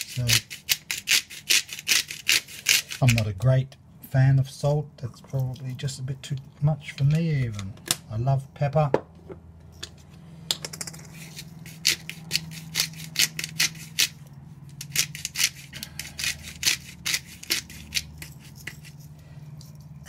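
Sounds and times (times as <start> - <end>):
pepper grinder cracking peppercorns: 10.8 - 19.0.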